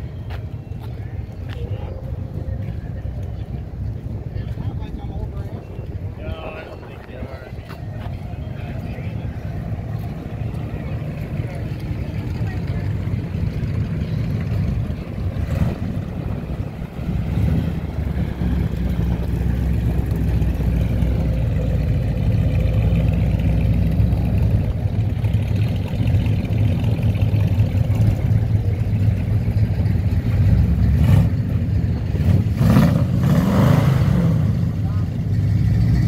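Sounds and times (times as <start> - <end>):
pickup truck engine running: 6.9 - 33.3.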